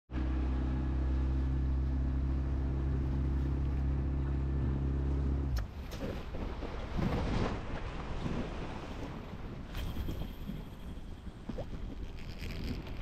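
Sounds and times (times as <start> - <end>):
boat motor droning: 0.1 - 6.9
wind: 0.1 - 13.0
splashing water: 5.6 - 10.2.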